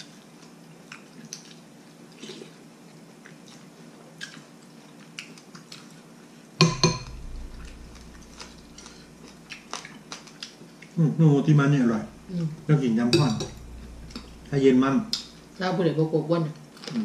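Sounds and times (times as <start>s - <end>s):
loud double knock: 6.6s - 9.5s, 12.0s - 15.5s
low hum: 6.6s - 10.4s, 11.5s - 16.3s.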